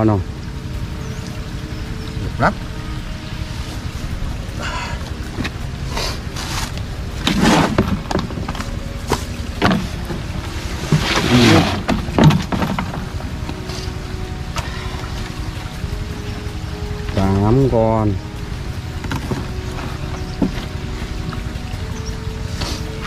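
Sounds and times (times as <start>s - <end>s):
plastic trough scraping and knocking: 7.2s - 10.2s, 10.8s - 13.1s.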